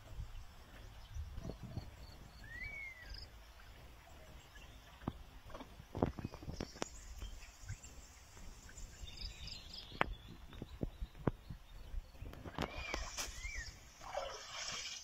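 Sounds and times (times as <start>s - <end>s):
faint bird chirps: 0.9s - 5.1s, 6.2s - 14.4s
mud slaps and splashes: 12.6s - 15.0s.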